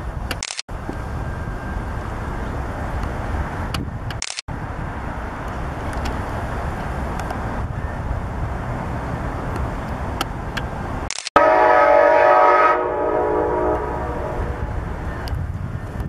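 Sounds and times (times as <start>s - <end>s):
diesel locomotive rumble: 0.0s - 16.0s
train air horn blast: 11.4s - 14.8s.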